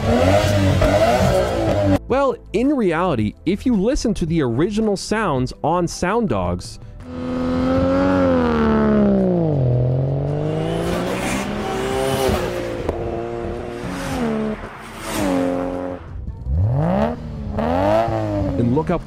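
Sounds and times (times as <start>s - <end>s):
turbocharged car engine revving: 0.0s - 2.0s, 7.0s - 19.0s.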